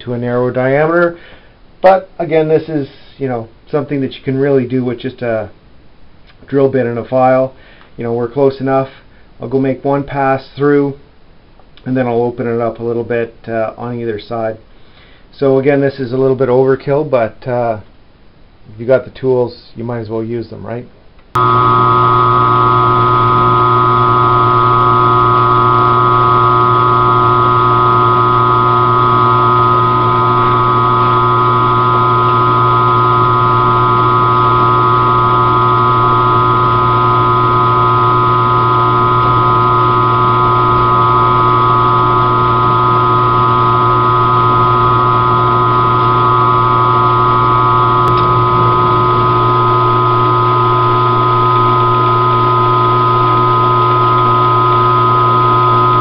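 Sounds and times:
mill drill motor humming: 0:21.4 - 0:56.0.

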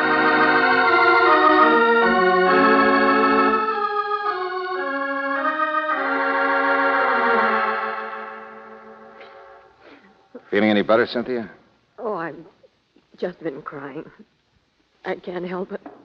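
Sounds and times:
organ chords with vibrato: 0:00.0 - 0:10.0.

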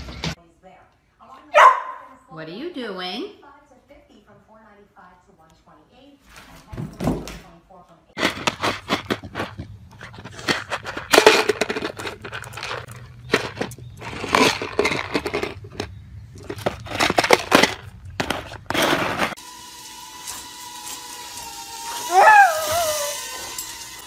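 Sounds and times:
plastic tub scraping over asphalt: 0:08.2 - 0:19.4.

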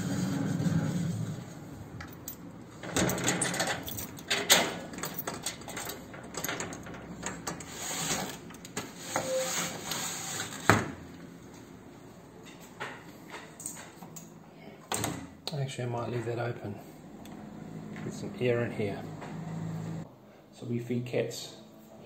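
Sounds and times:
padlock and gate latch rattling: 0:02.0 - 0:07.6.

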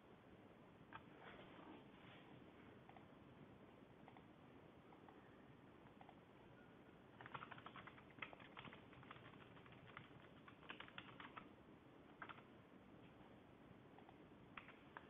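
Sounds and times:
typing on keyboard: 0:07.2 - 0:11.5, 0:12.1 - 0:12.5, 0:14.0 - 0:15.0.

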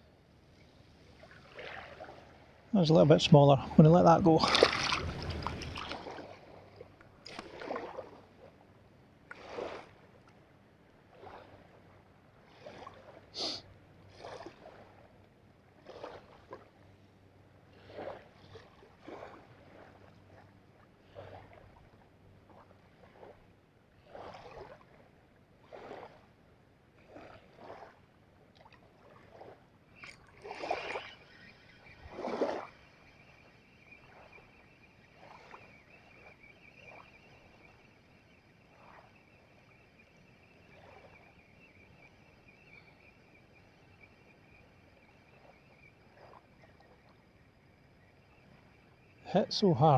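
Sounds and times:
small waves lapping on stones: 0:01.0 - 0:08.5, 0:09.2 - 0:10.1, 0:17.7 - 0:20.5, 0:25.6 - 0:26.3, 0:27.0 - 0:37.9.

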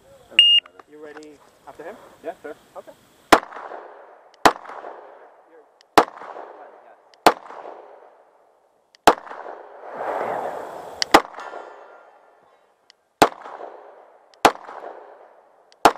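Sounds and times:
pistol shots with echo: 0:03.3 - 0:08.2, 0:09.0 - 0:09.7, 0:13.2 - 0:15.9
rush of noise: 0:09.8 - 0:12.4.

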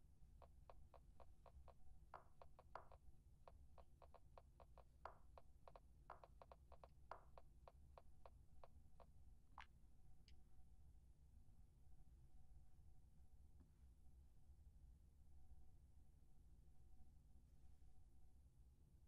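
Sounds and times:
typing on smartphone: 0:00.4 - 0:08.8.

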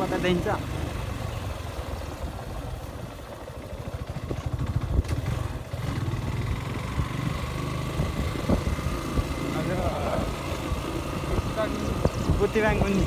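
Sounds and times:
motorcycle engine running: 0:00.0 - 0:13.0
sharp knocks from bumpy road: 0:02.2 - 0:06.2.

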